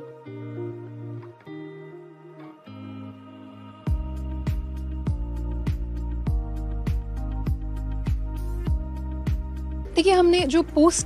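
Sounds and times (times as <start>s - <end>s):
soft sustained background music: 0.0s - 11.0s
deep regular beat: 3.9s - 9.9s.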